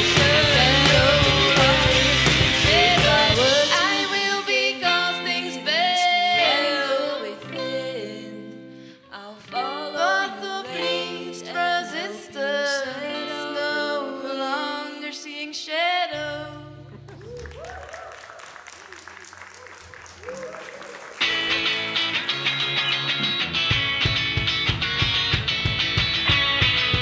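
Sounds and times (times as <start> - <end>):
electric guitar: 0.0 - 15.0, 20.8 - 27.0
person singing: 0.0 - 16.9.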